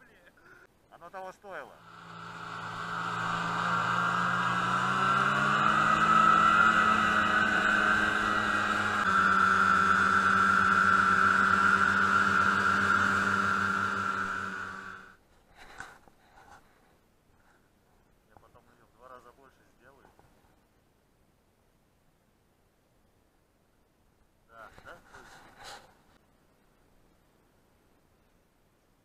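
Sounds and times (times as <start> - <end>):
snowmobile engine running: 1.7 - 15.1.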